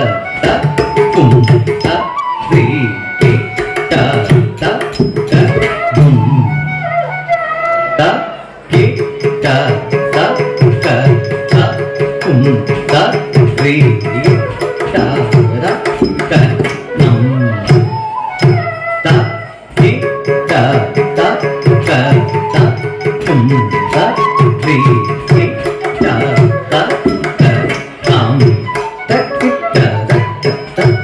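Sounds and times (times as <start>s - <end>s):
hand drum strokes: 12.3s - 17.8s.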